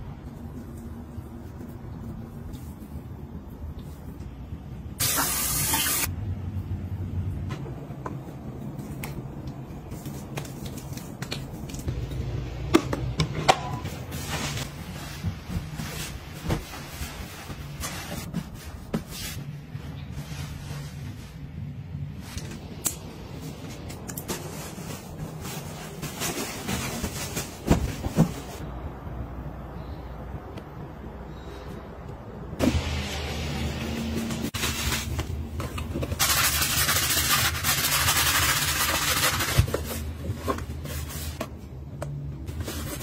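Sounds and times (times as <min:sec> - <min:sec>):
low steady hum: 0:06.1 - 0:36.2.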